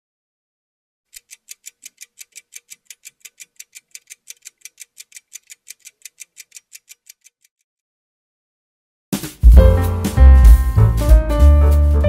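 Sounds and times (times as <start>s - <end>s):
clock ticking: 1.1s - 7.6s.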